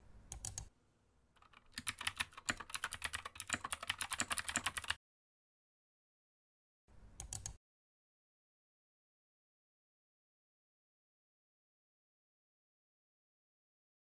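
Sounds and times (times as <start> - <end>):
typing on laptop keyboard: 1.4 - 5.0.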